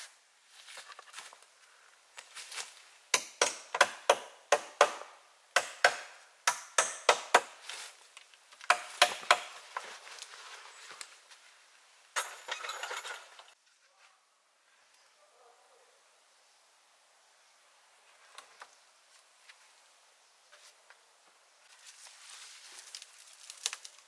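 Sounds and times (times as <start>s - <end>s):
rustle of wood and branches: 0.0s - 3.1s, 7.5s - 14.3s, 18.0s - 24.0s
hatchet chopping wooden pole: 3.1s - 7.6s, 8.6s - 9.6s.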